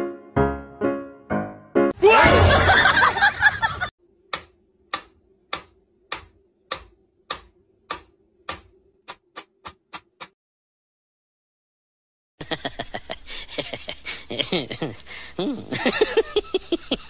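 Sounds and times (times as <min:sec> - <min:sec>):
faint steady hum: 0:12.4 - 0:17.0.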